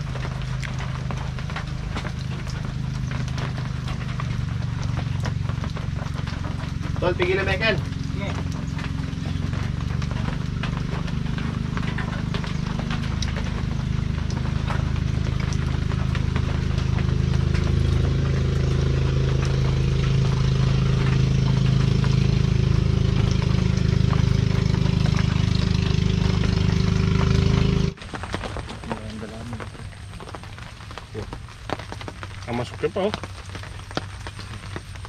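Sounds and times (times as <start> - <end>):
small engine running: 0.0 - 28.0.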